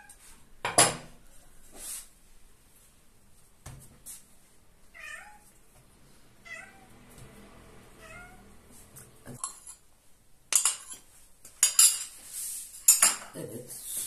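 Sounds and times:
cat meowing: 0:04.9 - 0:05.5, 0:06.4 - 0:07.0, 0:08.0 - 0:08.5
metal spoon clinking ceramic bowl: 0:09.4 - 0:09.8, 0:10.5 - 0:11.0.

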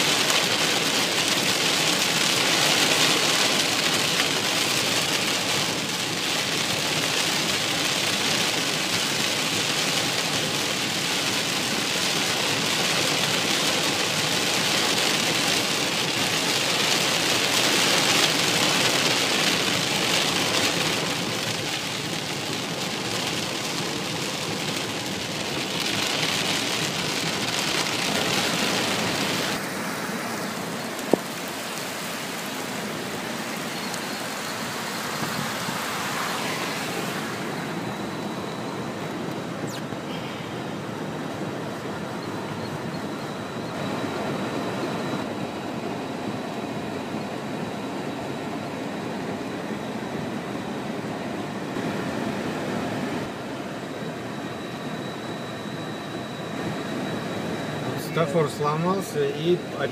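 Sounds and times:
car tyres hissing on wet road: 0:00.0 - 0:42.0, 0:57.8 - 0:59.9
heavy rain on car roof: 0:00.0 - 0:45.3, 0:57.8 - 0:59.9.

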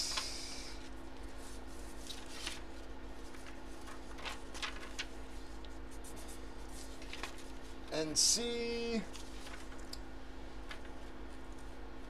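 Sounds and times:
faint steady hum: 0:00.0 - 0:12.0
paper and cards rustling: 0:01.1 - 0:07.8, 0:08.9 - 0:09.9, 0:10.6 - 0:11.8.

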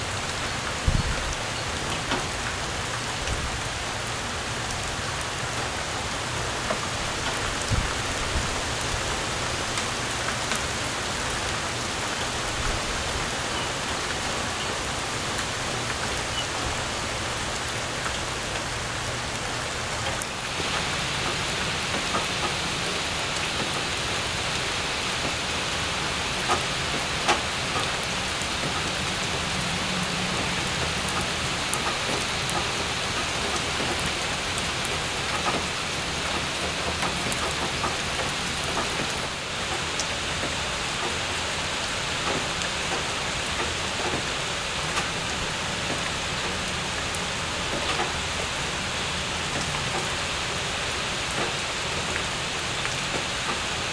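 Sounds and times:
rain hissing: 0:00.0 - 0:53.9
rain pattering on wet pavement: 0:00.0 - 0:53.9.

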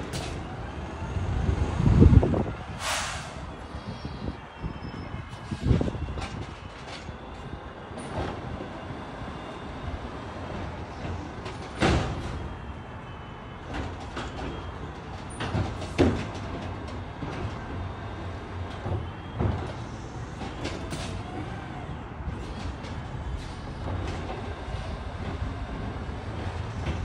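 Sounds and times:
garbage truck engine running: 0:00.0 - 0:27.0.

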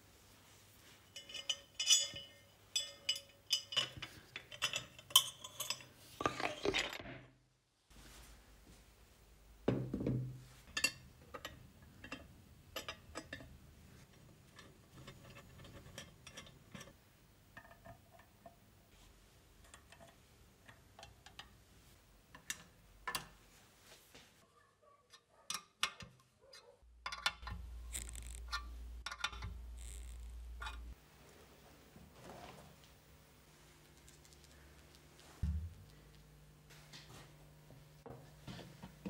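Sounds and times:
steady low hum: 0:26.9 - 0:39.0.

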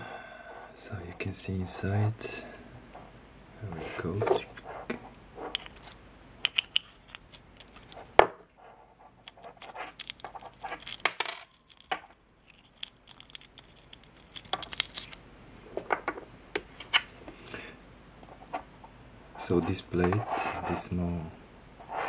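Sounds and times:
small parts clicking and scraping: 0:05.4 - 0:08.1, 0:09.2 - 0:15.2.

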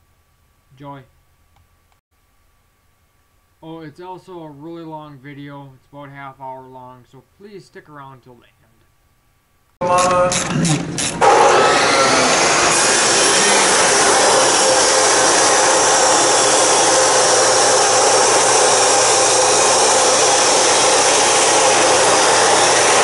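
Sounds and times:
chop saw cutting metal: 0:09.8 - 0:23.0.

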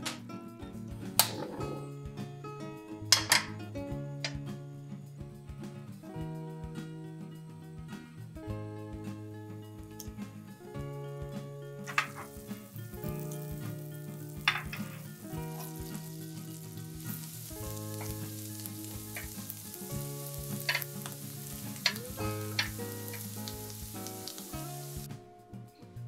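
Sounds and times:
butter and garlic sizzling in pan: 0:11.8 - 0:25.1
tongs clicking against pan: 0:17.3 - 0:19.7, 0:20.3 - 0:24.5.

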